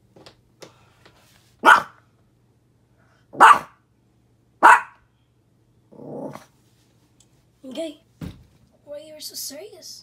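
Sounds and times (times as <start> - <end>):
dog barking: 1.6 - 2.0, 3.3 - 3.8, 4.6 - 5.0.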